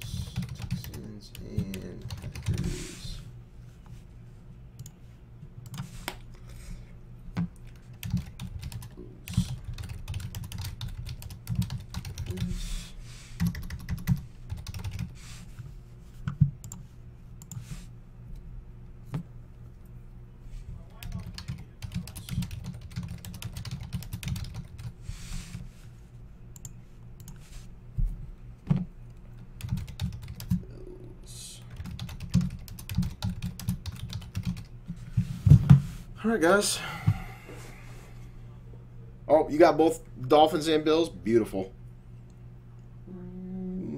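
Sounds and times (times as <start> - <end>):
typing on computer keyboard: 0.1 - 2.6, 7.8 - 12.4, 13.4 - 15.1, 21.0 - 24.9, 29.6 - 30.6, 31.7 - 34.7.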